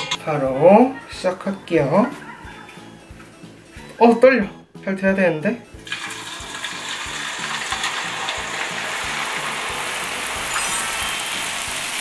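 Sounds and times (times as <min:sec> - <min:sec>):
batter frying in hot oil: 0:05.8 - 0:12.0.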